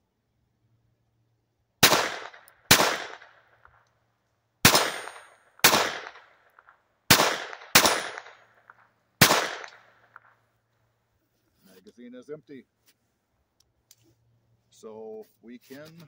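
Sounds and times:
pistol shots with echo: 1.8s - 3.6s, 4.6s - 10.3s.

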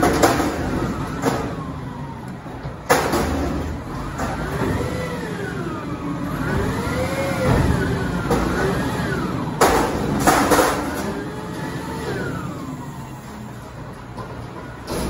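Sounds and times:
truck diesel engine revving: 3.2s - 13.6s.

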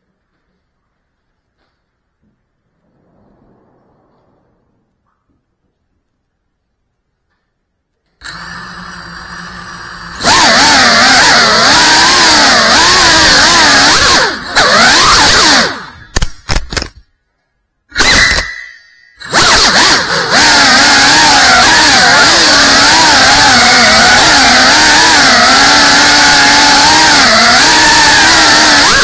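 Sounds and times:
drone propellers whining: 8.2s - 16.2s, 18.0s - 29.0s.

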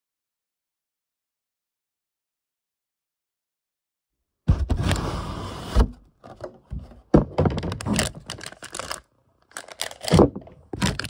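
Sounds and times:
plastic packaging crinkling: 7.5s - 11.0s.

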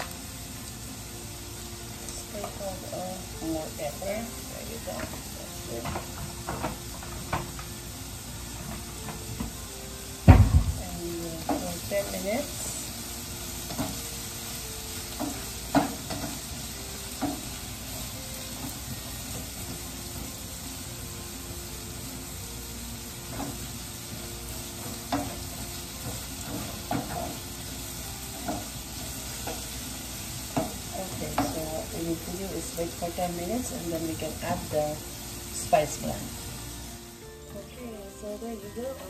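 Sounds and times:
vegetables sizzling in a frying pan: 0.0s - 39.0s
spatula scraping a pan: 23.2s - 36.0s.

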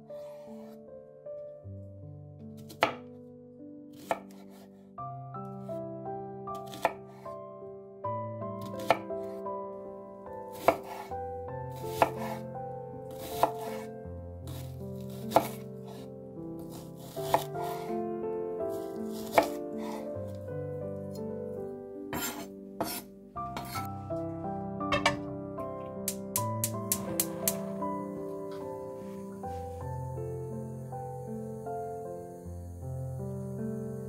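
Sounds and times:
background music with held chords: 0.0s - 34.0s
knife chopping on cutting board: 2.6s - 3.1s, 4.0s - 4.6s, 6.6s - 7.0s, 8.7s - 9.0s, 10.5s - 11.1s, 11.7s - 12.4s, 13.1s - 13.9s, 14.5s - 16.0s, 16.6s - 17.9s, 19.0s - 20.1s, 22.1s - 23.9s.

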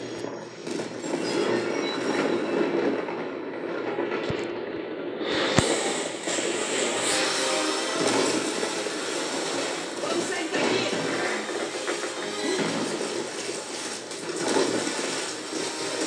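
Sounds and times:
sharp crack: 5.2s - 16.0s.

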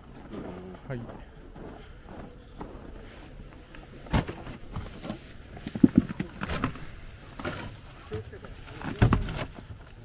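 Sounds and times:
sled knocks and bumps: 4.0s - 7.8s, 8.4s - 10.0s.

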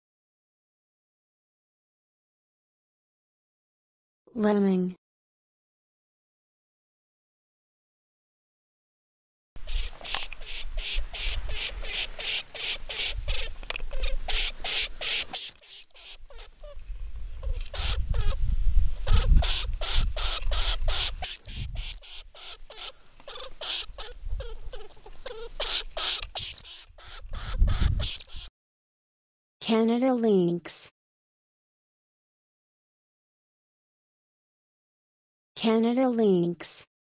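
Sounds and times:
high squeaks: 9.7s - 16.8s, 19.0s - 28.5s.

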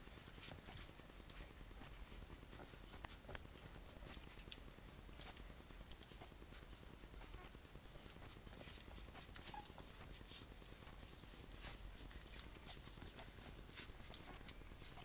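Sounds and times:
puppies suckling: 0.0s - 15.0s
puppy squeak: 9.4s - 9.8s.

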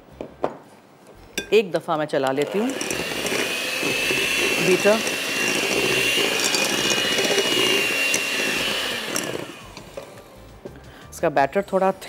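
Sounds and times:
electric hand mixer whining: 2.4s - 10.4s.

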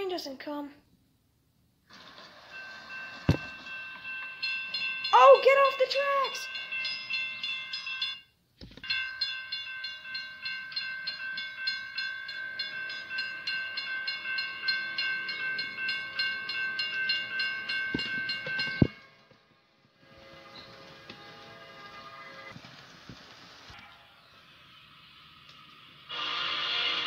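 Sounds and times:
electronic train horn with pulsing: 20.0s - 22.5s, 26.1s - 27.0s.

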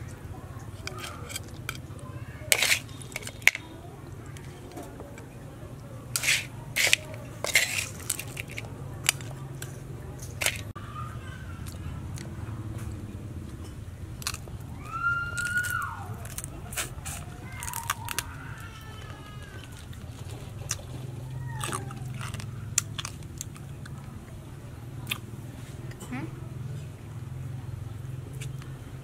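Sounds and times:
crab shells cracking and crunching: 0.6s - 5.3s, 6.2s - 10.8s, 14.0s - 24.2s.

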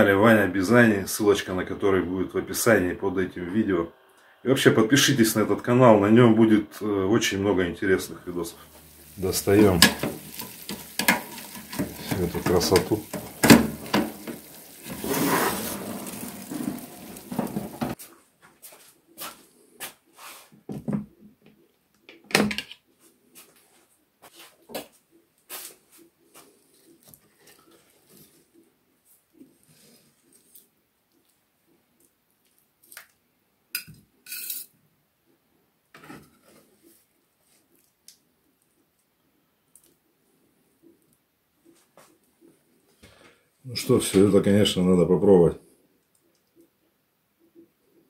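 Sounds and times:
food sizzling: 5.1s - 18.0s
metal tray clanking and scraping: 9.6s - 18.0s.

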